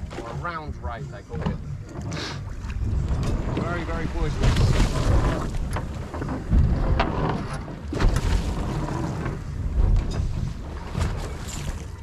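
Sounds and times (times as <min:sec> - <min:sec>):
sea washing against boat: 0:00.0 - 0:12.0
wind buffeting microphone: 0:02.5 - 0:12.0.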